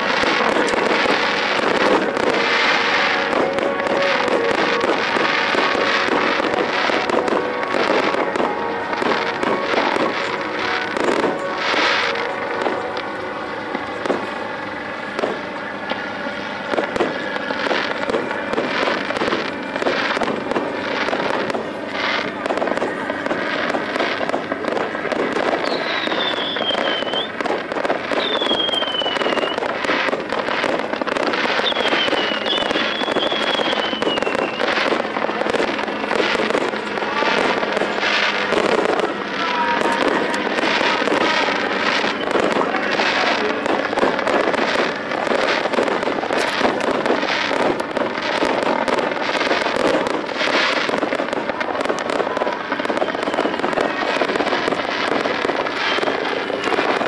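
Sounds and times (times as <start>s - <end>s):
fireworks crackling and popping: 0.0s - 57.0s
falling whistles: 25.6s - 27.4s, 28.2s - 29.7s, 31.6s - 34.8s.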